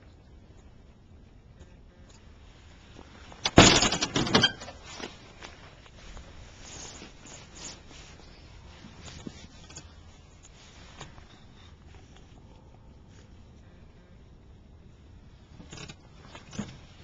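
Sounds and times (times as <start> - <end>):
faint clicks and handling noises: 4.7 - 13.7.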